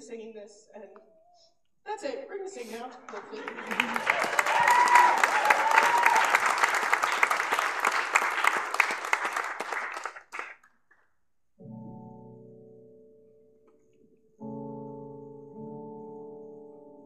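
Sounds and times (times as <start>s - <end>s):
congregation applauding: 3.1s - 10.7s
keyboard chord: 11.6s - 17.0s.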